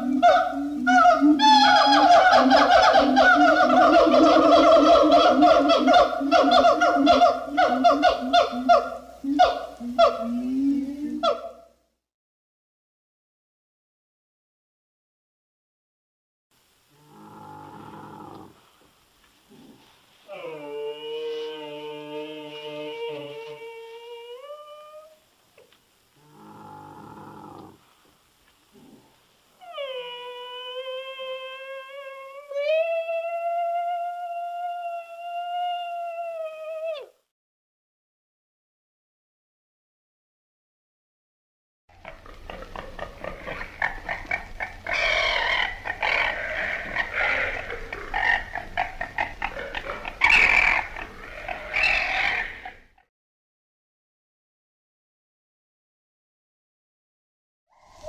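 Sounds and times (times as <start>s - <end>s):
babirusa grunting: 17.0s - 18.6s, 19.5s - 20.8s, 26.2s - 27.8s, 28.7s - 29.2s, 42.0s - 53.0s
camel calling: 19.5s - 25.1s, 42.0s - 52.9s
camel grumbling: 26.3s - 27.8s.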